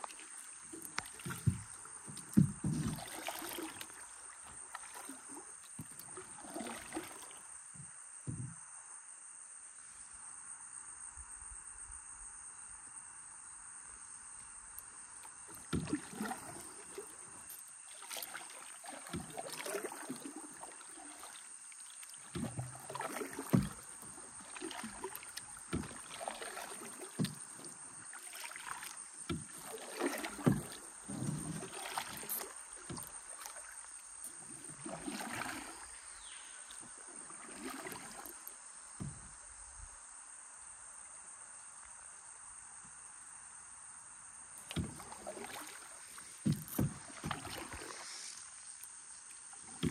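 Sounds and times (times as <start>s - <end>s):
paddles splashing in water: 0.0s - 7.5s, 15.2s - 39.4s, 44.6s - 49.9s.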